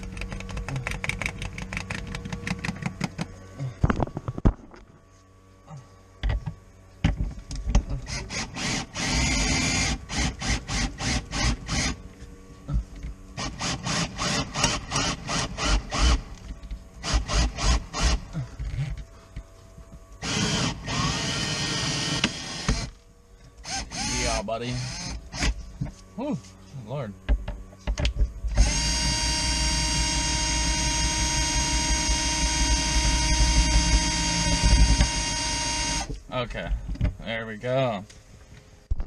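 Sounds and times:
cordless drill rapid clicking: 0:13.4 - 0:16.2.

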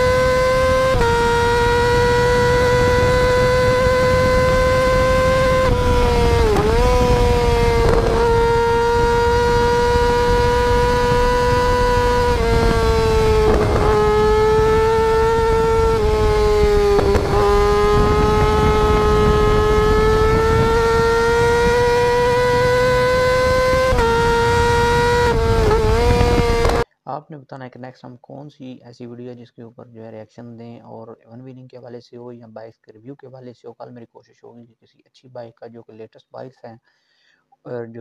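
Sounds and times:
motorcycle engine at high revs: 0:00.0 - 0:26.8.

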